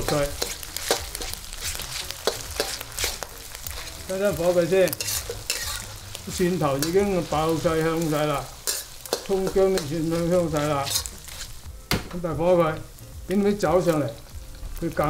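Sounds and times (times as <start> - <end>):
spatula scraping a wok: 0.0 - 11.7
meat sizzling in a wok: 0.0 - 15.0.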